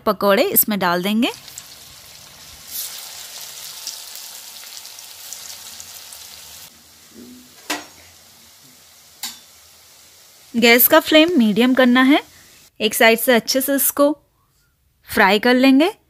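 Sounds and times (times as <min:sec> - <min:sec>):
food deep-frying in oil: 0:01.0 - 0:12.7.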